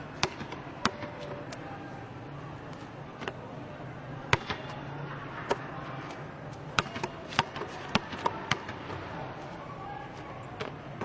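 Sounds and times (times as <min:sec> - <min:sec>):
basketball bouncing on concrete: 0:00.2 - 0:01.4, 0:04.3 - 0:04.8, 0:06.7 - 0:09.0.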